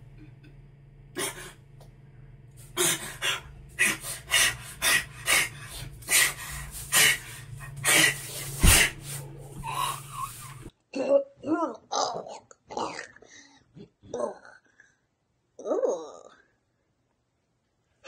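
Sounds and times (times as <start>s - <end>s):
man gasping and panting: 1.2s - 1.6s, 2.6s - 10.7s.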